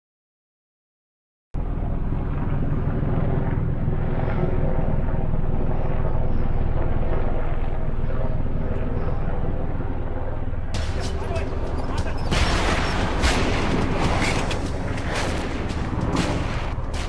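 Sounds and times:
aircraft engine drone: 0:01.6 - 0:17.0.

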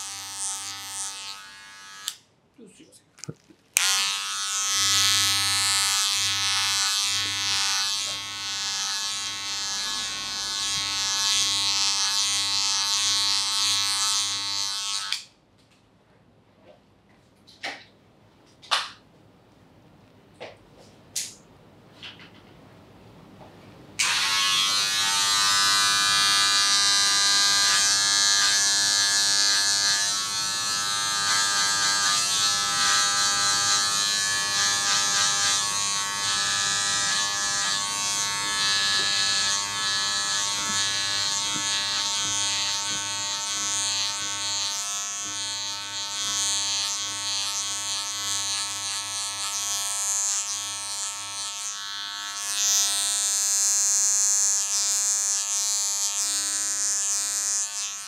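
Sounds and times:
electric hair clippers buzzing: 0:00.0 - 0:02.2, 0:03.2 - 0:15.3, 0:24.0 - 0:58.0.

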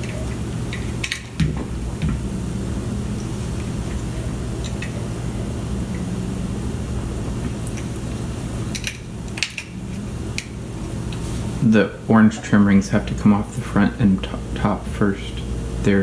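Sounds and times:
machine humming: 0:00.0 - 0:16.0.

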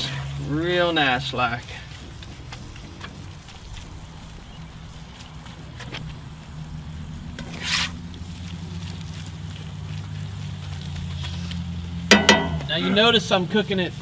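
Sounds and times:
faint crackles: 0:00.0 - 0:14.0
ground beef sizzling in skillet: 0:00.0 - 0:14.0
metal spatula scraping: 0:07.4 - 0:08.0.

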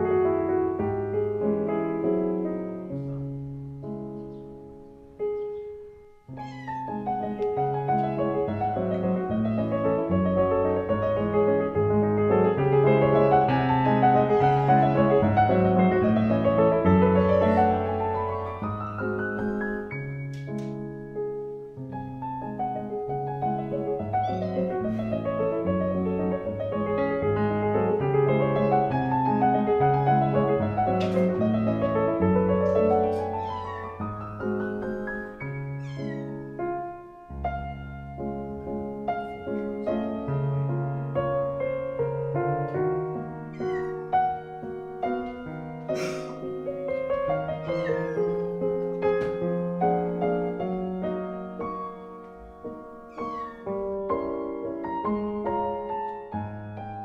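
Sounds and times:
solo classical piano: 0:00.0 - 0:57.0
cat meowing: 0:06.3 - 0:07.4, 0:14.2 - 0:15.3, 0:24.0 - 0:25.1, 0:32.7 - 0:36.6, 0:43.5 - 0:44.4, 0:47.2 - 0:49.0, 0:53.1 - 0:53.9.

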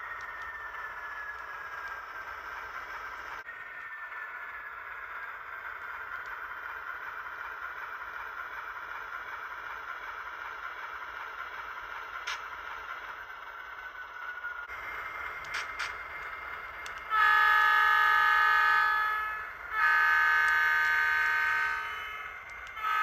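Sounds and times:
faint falling whine: 0:00.0 - 0:10.1
model train motor whirring: 0:14.7 - 0:23.0.

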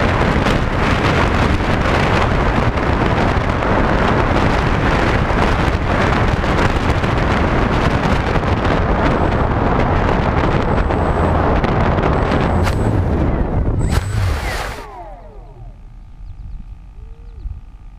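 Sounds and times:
wind rushing on microphone: 0:00.0 - 0:17.9
faint high whine: 0:12.0 - 0:17.9.

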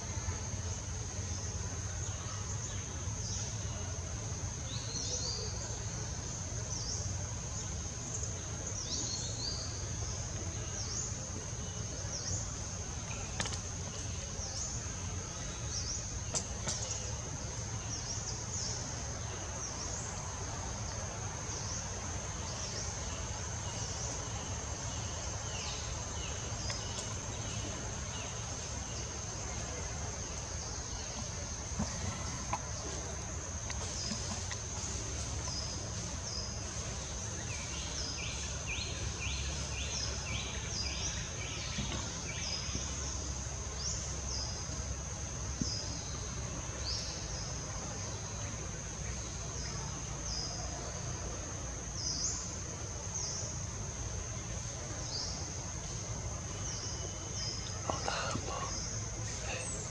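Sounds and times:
small birds chirping: 0:54.9 - 0:59.9.

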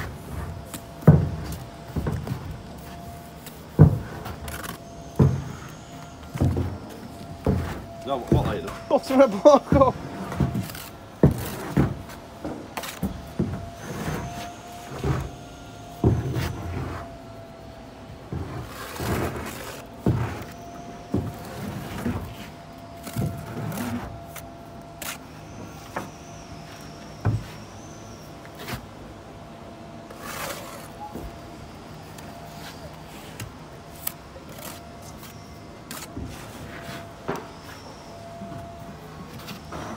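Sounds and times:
faint steady whine: 0:00.0 - 0:39.9
trowel scraping mortar: 0:30.1 - 0:31.0.

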